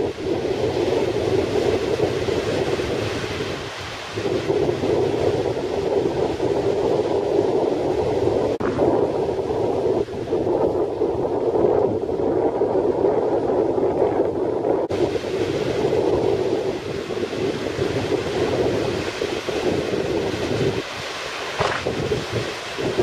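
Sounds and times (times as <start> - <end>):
wind buffeting microphone: 0.0 - 23.0
surf breaking on shingle: 21.4 - 22.3.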